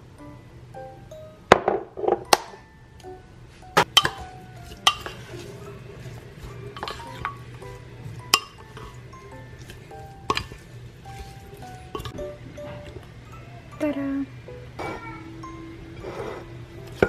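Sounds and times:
soft background music: 0.0 - 17.0.

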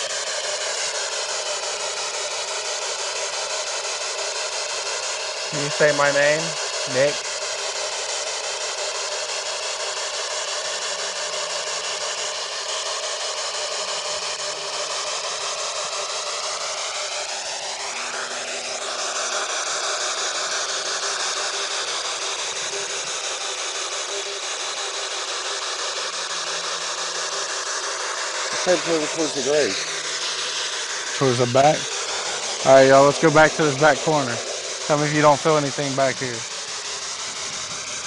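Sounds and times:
radio static sweeping stations: 5.5 - 7.2, 28.5 - 37.8.

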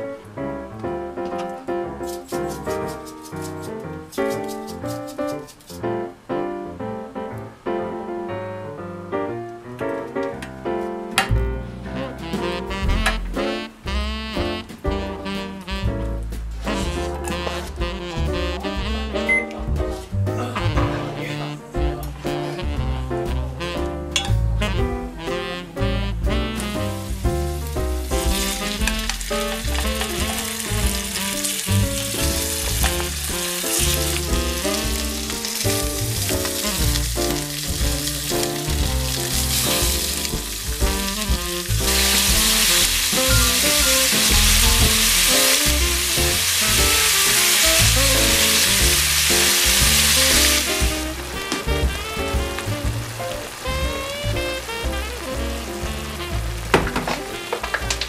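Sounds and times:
background music: 0.0 - 58.0
pork belly sizzling in pan: 1.8 - 6.1, 11.6 - 20.2, 22.3 - 58.0
garlic sizzling in oil: 26.1 - 58.0.

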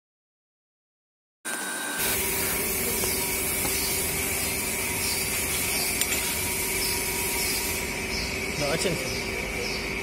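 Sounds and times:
steady hissing noise: 2.0 - 9.5.

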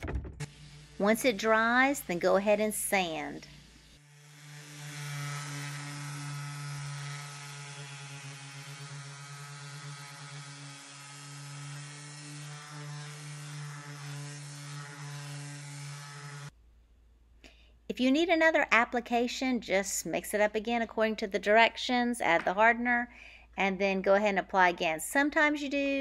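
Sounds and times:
orbit sander running: 0.4 - 2.4, 3.6 - 16.5.

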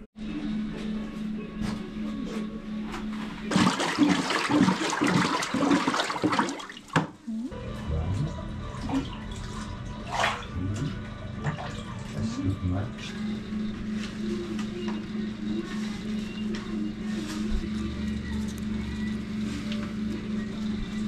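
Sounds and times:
water sloshing and splashing: 3.5 - 7.2, 8.7 - 12.2.

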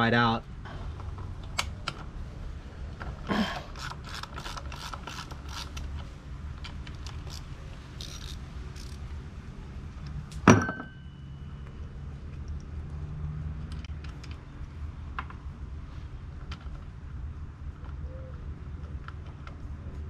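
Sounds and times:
hand ratchet clicking: 3.7 - 5.9, 7.0 - 9.0
sharp metal clank: 10.5 - 11.3.

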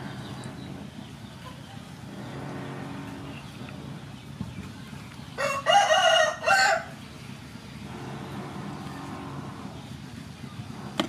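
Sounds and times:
low steady hum: 0.0 - 11.0
rooster crowing: 5.4 - 7.0.

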